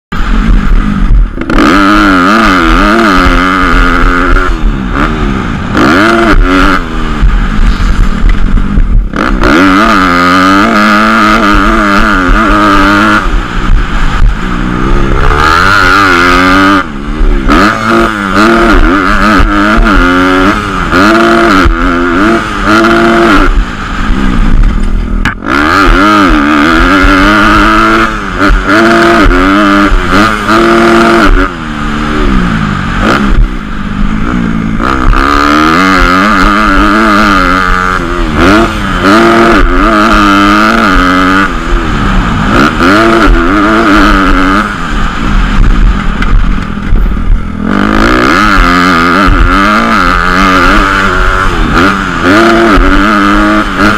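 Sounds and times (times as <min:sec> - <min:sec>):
dirt bike engine revving: 0:00.0 - 0:53.9.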